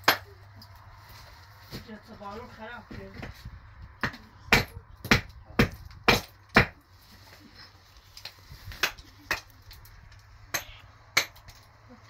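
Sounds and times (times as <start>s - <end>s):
hand tool striking block wall: 4.0s - 6.8s.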